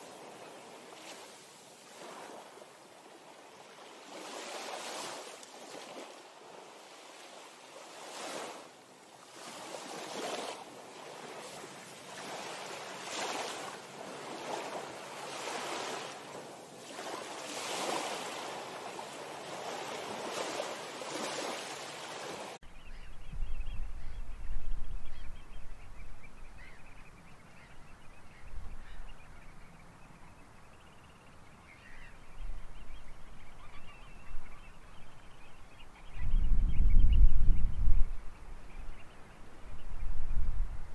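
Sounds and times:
small waves washing: 0.0s - 22.6s
wind buffeting microphone: 22.7s - 27.0s, 32.2s - 40.9s.

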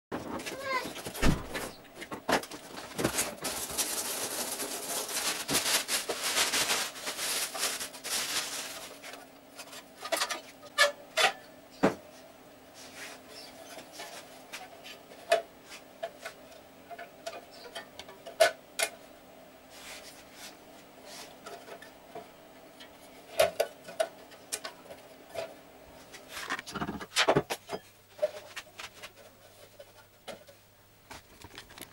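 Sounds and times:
packaging rustling: 2.4s - 9.3s.

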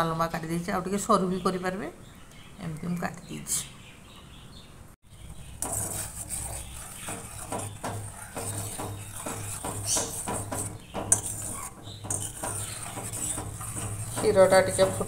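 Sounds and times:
spoon scraping and clinking a pan: 5.6s - 15.0s.

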